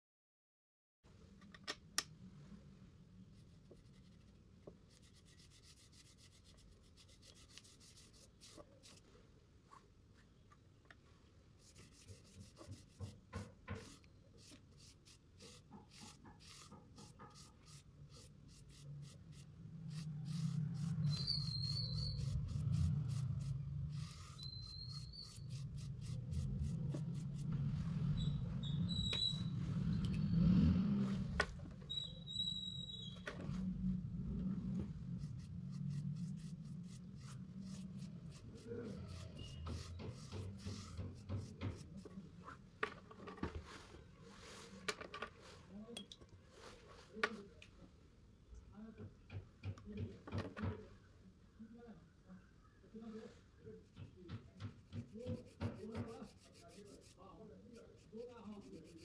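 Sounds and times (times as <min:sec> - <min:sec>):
paintbrush scrubbing on paper: 0:03.4 - 0:09.1, 0:11.6 - 0:29.8, 0:35.0 - 0:42.2, 0:53.9 - 0:59.0
low hum: 0:19.3 - 0:39.2
short high squeaks: 0:20.3 - 0:23.2, 0:23.9 - 0:26.1, 0:27.4 - 0:33.8, 0:38.9 - 0:40.0.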